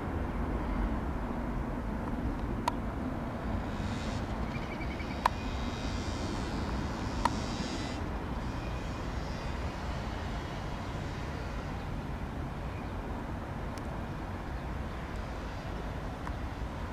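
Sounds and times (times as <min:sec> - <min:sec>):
jet engine rumble: 0:00.0 - 0:16.9
sharp clicks: 0:05.1 - 0:05.4, 0:07.1 - 0:08.0.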